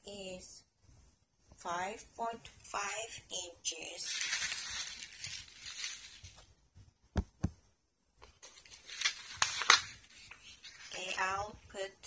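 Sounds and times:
plastic bags crinkling: 3.9s - 6.5s, 8.4s - 11.6s.

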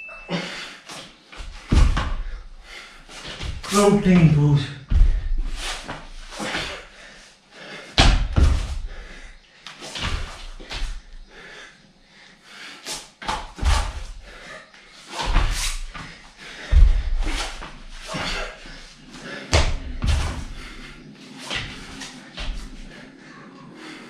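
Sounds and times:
thuds of landing on yoga mat: 1.4s - 2.3s, 8.0s - 8.9s, 10.0s - 11.0s, 13.2s - 14.1s, 15.2s - 18.4s, 19.5s - 20.6s
hard quick breathing: 13.8s - 24.0s.

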